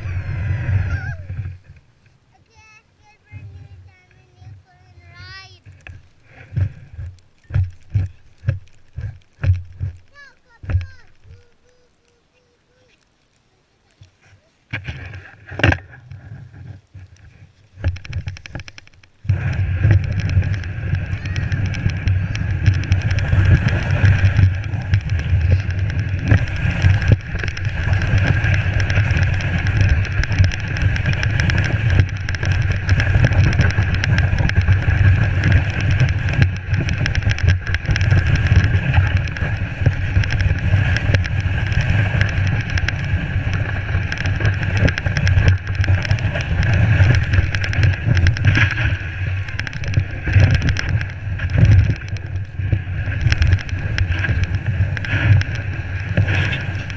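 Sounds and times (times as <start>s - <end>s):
sled scraping over snow: 0.0s - 1.8s, 2.4s - 13.0s, 13.9s - 56.9s
wind on microphone: 0.0s - 1.8s, 14.7s - 56.9s.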